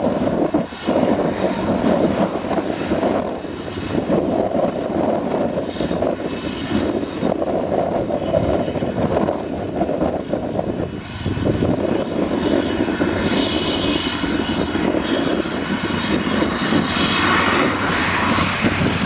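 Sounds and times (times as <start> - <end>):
forage harvester engine drone: 0.0 - 19.0
rushing hiss of blown grass: 15.0 - 19.0.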